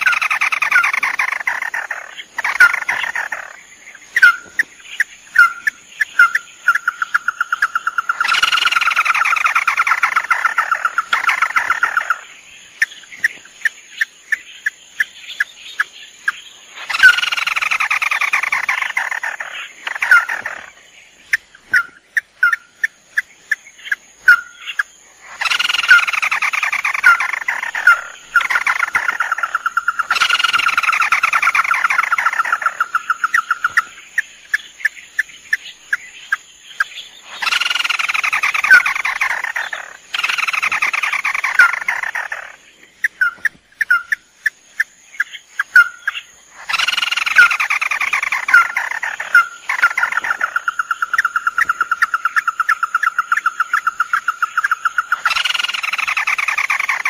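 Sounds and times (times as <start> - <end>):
crakes calling: 0.0 - 57.0.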